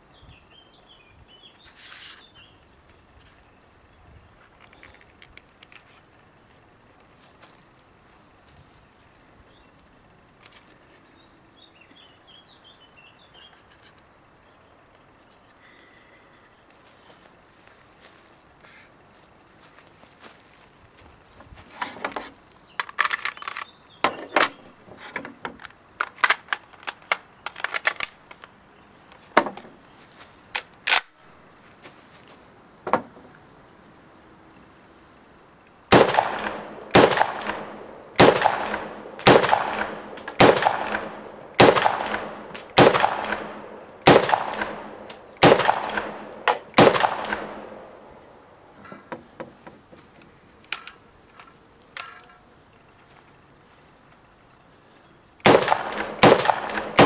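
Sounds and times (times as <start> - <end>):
clicks of bipod being handled: 4.5 - 6.1, 21.8 - 29.2, 50.2 - 52.4
rifle shots with echo: 35.9 - 48.2, 55.4 - 57.0.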